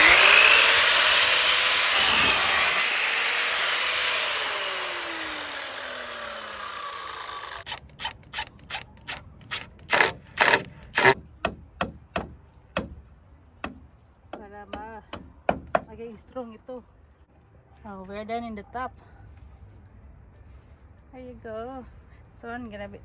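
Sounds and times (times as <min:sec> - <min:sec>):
miter saw cutting wood: 0:00.0 - 0:08.8, 0:09.8 - 0:11.2
hammer nailing into wood: 0:09.9 - 0:13.0, 0:15.1 - 0:15.9.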